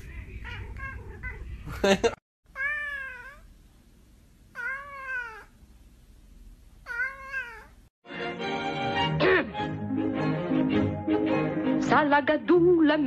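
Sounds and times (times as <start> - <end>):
cat meowing: 2.5 - 3.5, 4.5 - 5.6, 6.8 - 7.9.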